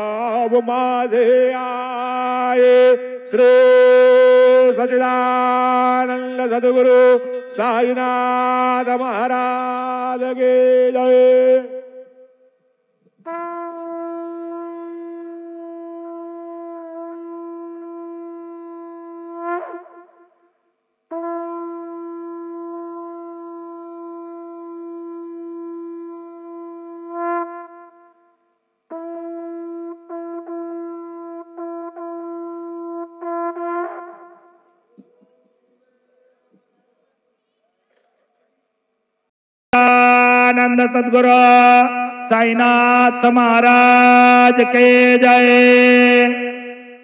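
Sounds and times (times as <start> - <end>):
conch shell blasts: 13.2 - 20.5, 21.1 - 28.3, 28.9 - 34.8.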